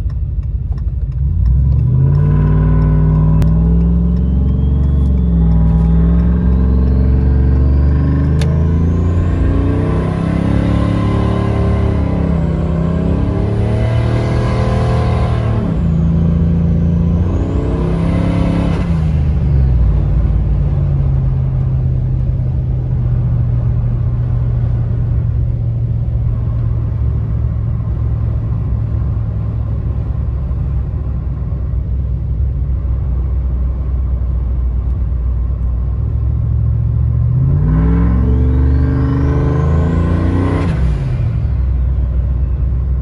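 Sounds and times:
engine droning: 0.0s - 43.0s
turbo whistle: 3.9s - 7.8s.

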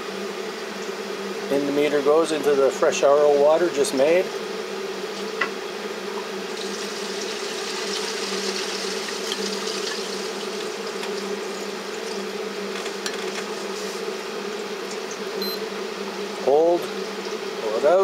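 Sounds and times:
water filter system humming: 5.2s - 14.0s.

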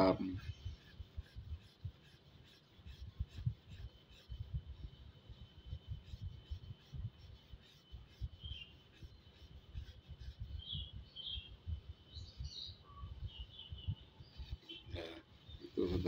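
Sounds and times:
pencil shading on paper: 0.0s - 11.5s
small birds chirping: 0.0s - 16.0s.

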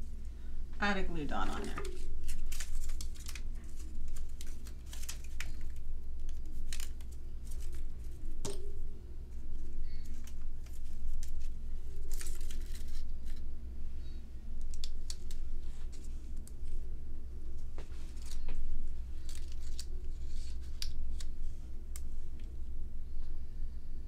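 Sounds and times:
release tape crinkling: 1.5s - 8.7s, 9.5s - 13.5s, 14.6s - 16.9s, 17.7s - 22.6s.

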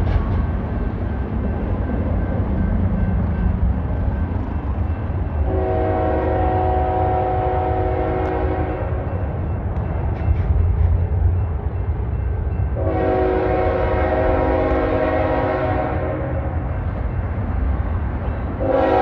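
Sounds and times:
locomotive air horn chord: 5.4s - 8.9s, 12.8s - 16.5s, 18.6s - 19.0s.

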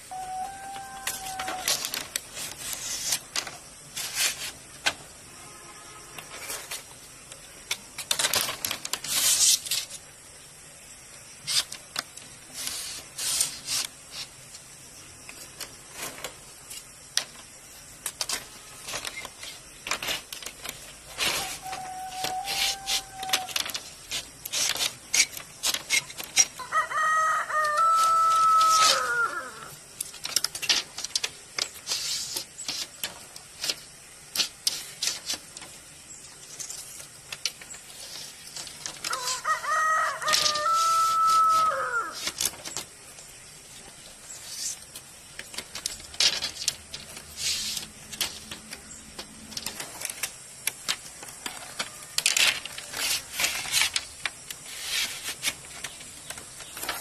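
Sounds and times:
rooster crowing: 0.1s - 1.9s, 21.5s - 23.6s, 26.6s - 29.7s, 39.0s - 42.3s
bamboo strips clattering and tapping: 0.1s - 10.3s, 11.0s - 57.0s.

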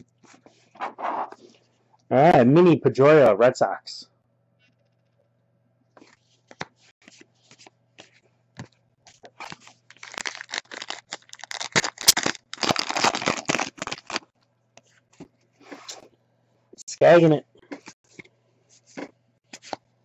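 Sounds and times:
card pack wrapper tearing and crinkling: 9.2s - 14.3s.

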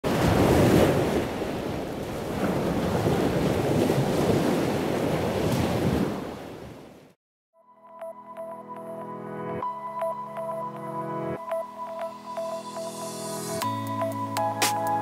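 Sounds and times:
surf rushing: 0.0s - 6.4s.

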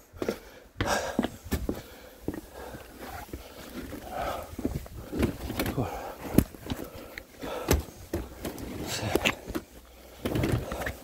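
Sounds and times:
footsteps on concrete: 0.0s - 8.4s.

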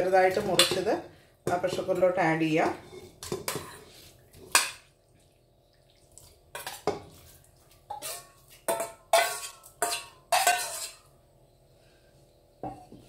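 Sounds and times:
metal spoon scraping steel bowl: 1.5s - 4.6s, 7.9s - 11.1s.

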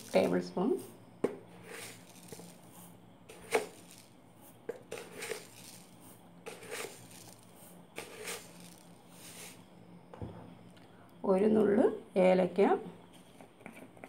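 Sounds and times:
sugar scraping and pouring: 0.0s - 9.7s.

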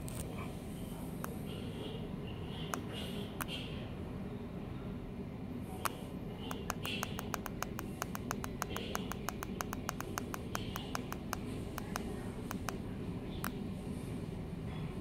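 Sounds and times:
push buttons clicking: 6.5s - 12.8s.

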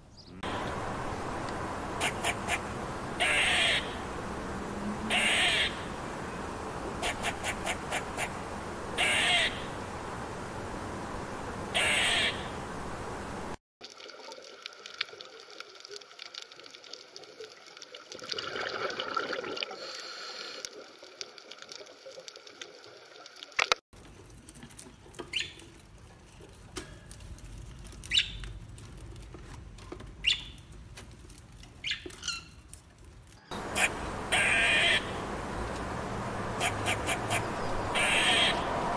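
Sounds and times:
underwater hiss with crackling: 19.7s - 23.7s
budgerigar chirping: 28.1s - 28.4s, 30.2s - 30.6s, 31.8s - 32.5s.

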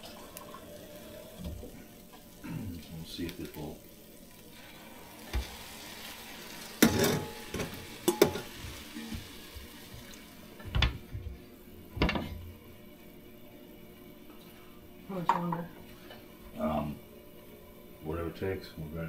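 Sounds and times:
steady hiss: 0.0s - 15.0s
metal cookware clanking: 6.8s - 8.6s.

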